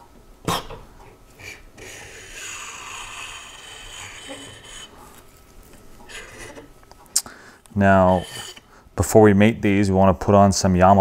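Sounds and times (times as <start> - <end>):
metal casing scraping along shaft: 1.8 - 6.8, 7.7 - 8.8.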